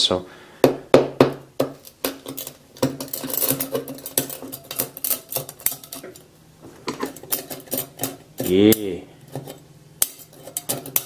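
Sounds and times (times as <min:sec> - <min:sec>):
knife tapping and scraping metal: 0:01.6 - 0:06.3, 0:06.9 - 0:11.0.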